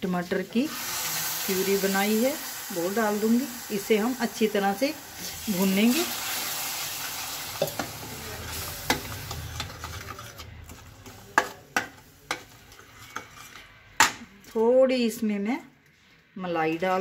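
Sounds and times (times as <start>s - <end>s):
food sizzling in pan: 0.0s - 13.5s
spoon stirring and scraping pan: 5.2s - 14.5s.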